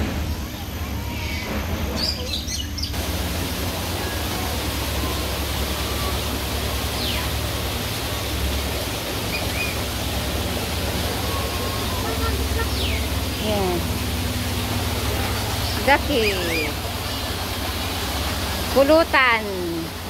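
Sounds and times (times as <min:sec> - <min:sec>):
loud rushing noise: 0:03.0 - 0:19.1
bird chirps: 0:06.8 - 0:07.4, 0:09.2 - 0:09.9, 0:11.2 - 0:13.9.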